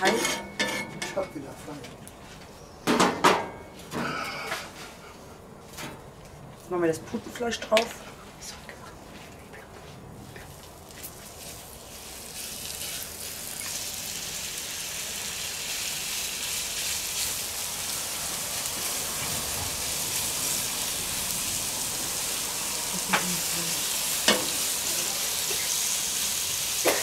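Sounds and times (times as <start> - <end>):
meat sizzling on a griddle: 11.0 - 27.0.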